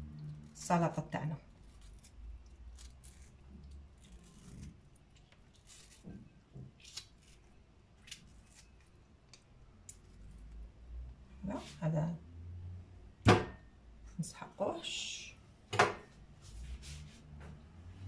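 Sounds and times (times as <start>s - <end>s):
knife cutting tomato skin: 1.6s - 10.5s.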